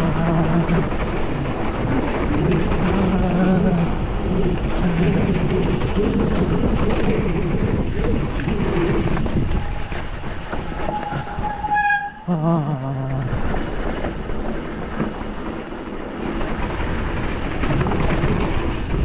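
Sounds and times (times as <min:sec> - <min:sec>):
bike tyres rumbling over dirt: 0:00.0 - 0:11.8, 0:13.2 - 0:19.0
wind on microphone: 0:00.0 - 0:19.0
high squeal: 0:10.6 - 0:12.4.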